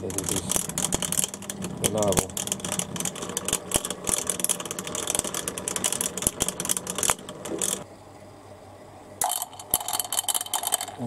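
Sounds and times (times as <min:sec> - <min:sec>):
fast dense rattle: 0:00.0 - 0:07.8
pump motor humming: 0:00.0 - 0:07.9.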